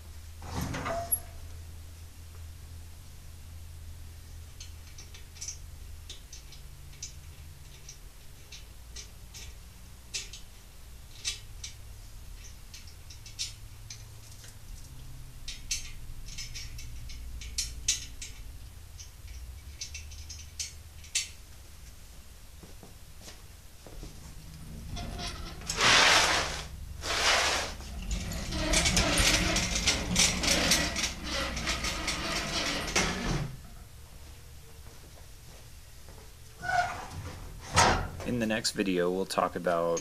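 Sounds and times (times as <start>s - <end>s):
low steady hum: 0.0s - 40.0s
metallic clicks of hand tools: 4.6s - 10.5s, 12.4s - 21.4s.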